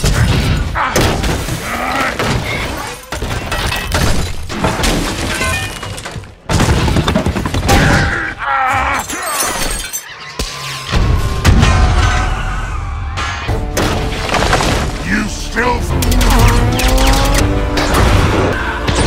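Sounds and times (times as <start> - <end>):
debris falling: 0.0 - 8.2, 13.8 - 15.4
glass shattering: 2.4 - 7.8, 9.0 - 10.2.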